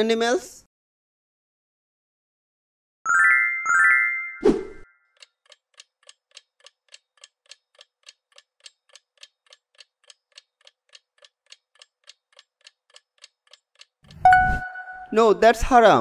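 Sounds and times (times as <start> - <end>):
clock ticking faintly: 5.2 - 14.3.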